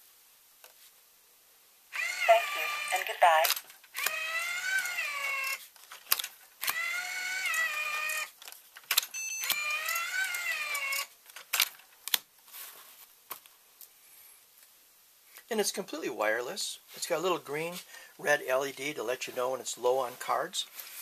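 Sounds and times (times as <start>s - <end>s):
dispenser motor whining: 2.0s - 3.1s, 4.0s - 5.6s, 6.6s - 8.3s, 9.4s - 11.1s
sharp mechanism clicks: 3.4s - 12.2s.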